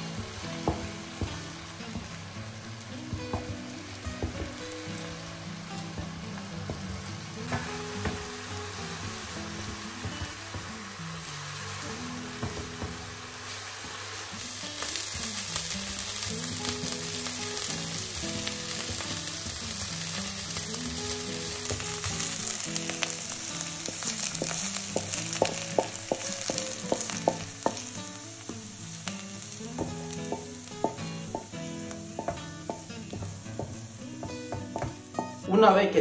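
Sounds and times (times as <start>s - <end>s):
onion sizzling in a pan: 0.0s - 36.0s.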